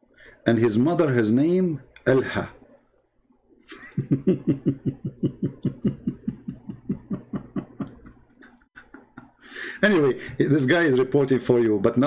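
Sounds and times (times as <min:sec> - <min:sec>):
man laughing: 0:03.7 - 0:10.6.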